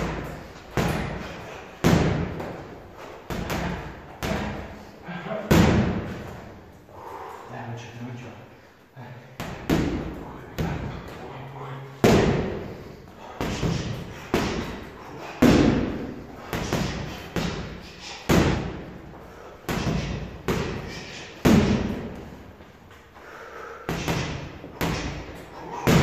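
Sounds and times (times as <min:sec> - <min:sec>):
boxing gloves punching heavy bag: 0:00.0 - 0:02.7, 0:03.3 - 0:04.7, 0:12.0 - 0:18.9, 0:19.7 - 0:22.4, 0:23.9 - 0:26.0.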